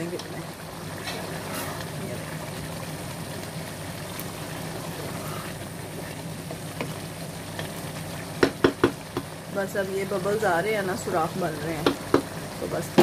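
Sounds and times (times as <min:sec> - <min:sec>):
rice boiling in a pot: 0:00.0 - 0:13.0
spoon knocking on pot: 0:08.4 - 0:09.3, 0:11.8 - 0:12.3.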